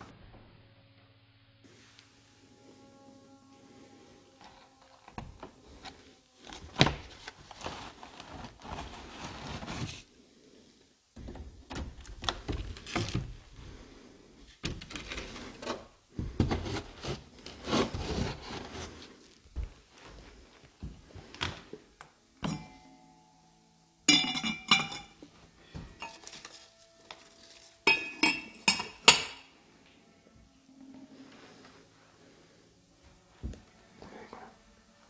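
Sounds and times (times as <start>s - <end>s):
rubbing and scraping on wood: 5.7s - 10.1s, 14.9s - 20.4s.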